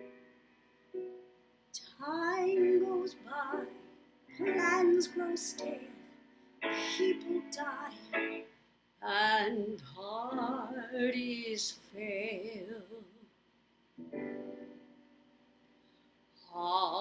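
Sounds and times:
woman singing slow song: 1.8 - 13.3, 16.4 - 17.0.

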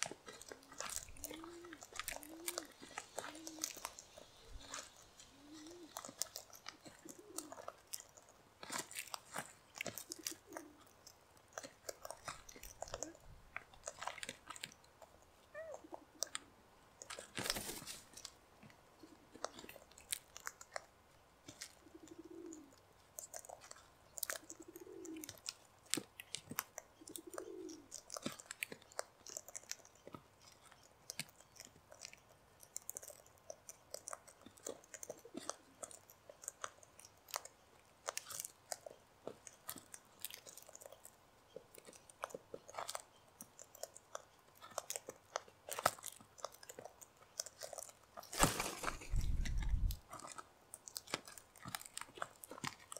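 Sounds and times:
cockatoos cracking seed: 0.0 - 11.0, 17.1 - 18.4, 44.7 - 52.9.

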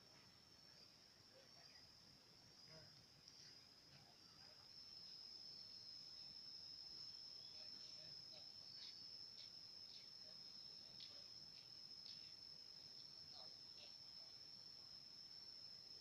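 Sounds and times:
faint chirps: 0.0 - 16.0
high-pitched insect drone: 0.5 - 16.0.

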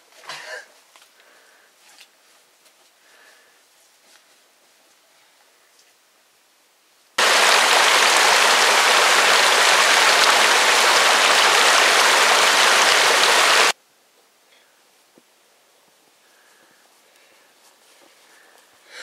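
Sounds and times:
stream rushing over rocks: 7.2 - 13.8.

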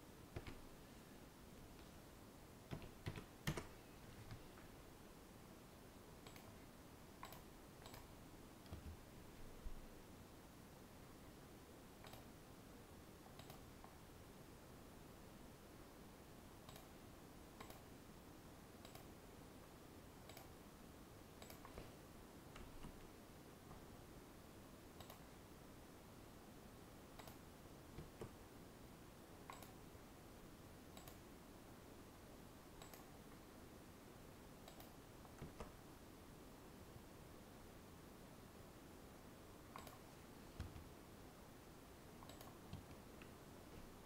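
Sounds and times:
steady low hiss: 0.0 - 44.0
computer mouse clicks: 0.3 - 0.6, 6.2 - 6.6, 7.2 - 8.9, 12.0 - 12.3, 13.2 - 14.0, 16.6 - 17.0, 17.6 - 17.9, 18.8 - 19.1, 20.2 - 20.6, 21.4 - 21.9, 25.0 - 25.3, 27.2 - 27.4, 29.5 - 29.8, 30.9 - 31.2, 32.8 - 33.2, 34.6 - 35.8, 39.7 - 40.9, 42.2 - 43.4.

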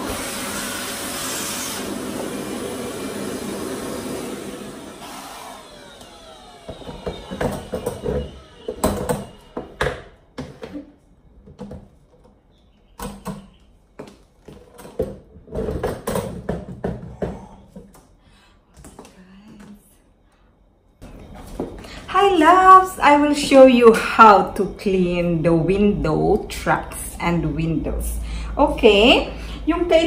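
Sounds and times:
vacuum motor winding down: 0.0 - 9.7.

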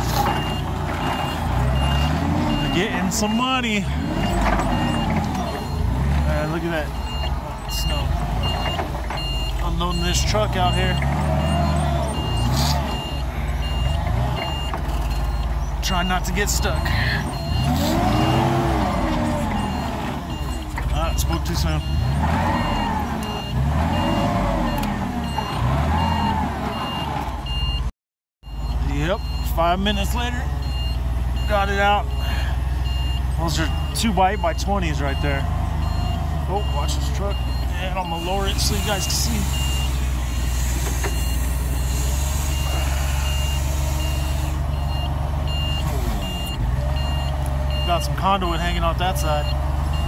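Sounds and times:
forklift engine revving: 0.0 - 27.9, 28.5 - 50.0
backup alarm beeping: 0.0 - 50.0.

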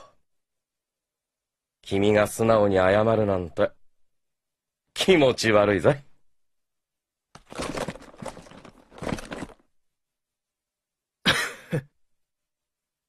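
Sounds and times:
man huffing or coughing: 11.2 - 12.0.

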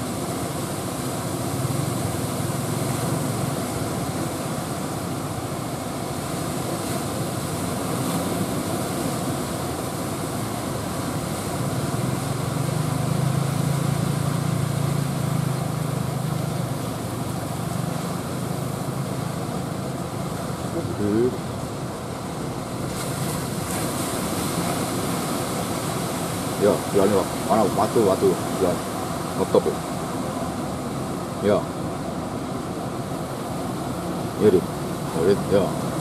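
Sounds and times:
surf breaking on beach: 0.0 - 36.0
low engine drone: 10.5 - 23.6.

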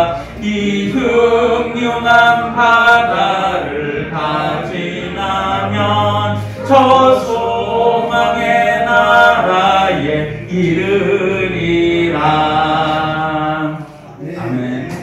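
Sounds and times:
man singing a hymn: 0.0 - 15.0
breath: 6.4 - 6.6.

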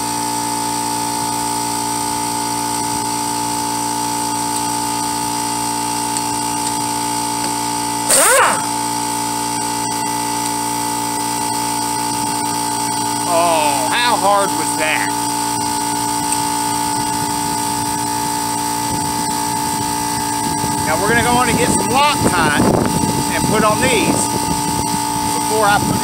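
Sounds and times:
steady machine hum: 0.0 - 26.0
pneumatic air gun spinning bolts: 7.4 - 8.9.

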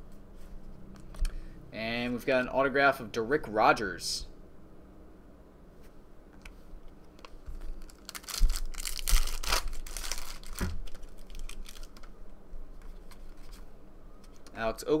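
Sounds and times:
wrapper ripping and crinkling: 7.2 - 12.1.

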